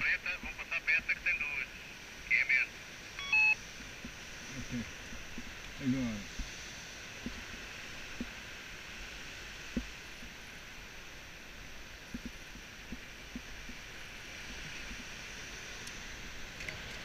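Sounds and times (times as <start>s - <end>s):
steady outdoor hiss: 0.0s - 17.0s.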